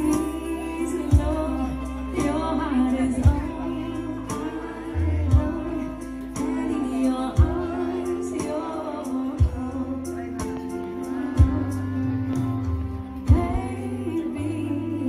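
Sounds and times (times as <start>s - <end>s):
acoustic guitar: 0.0s - 15.0s
woman singing: 0.0s - 15.0s
low beat: 9.3s - 14.2s.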